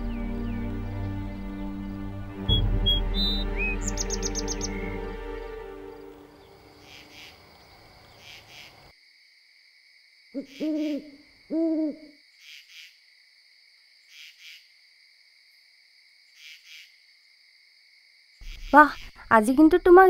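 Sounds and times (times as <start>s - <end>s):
night insects droning and chirping: 0.0s - 20.0s
owl hooting: 2.4s - 5.1s, 6.8s - 7.5s, 10.4s - 12.9s, 18.4s - 19.3s.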